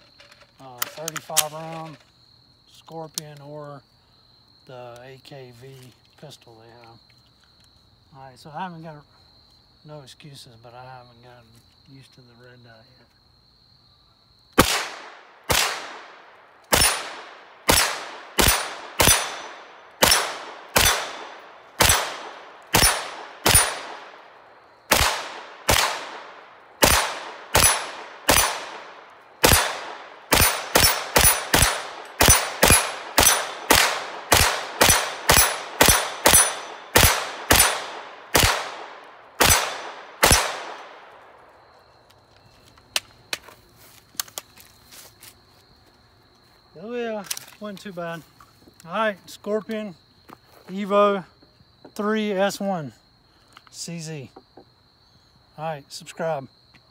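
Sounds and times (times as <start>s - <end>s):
gunshots with echo: 14.6s - 24.2s, 24.9s - 41.1s.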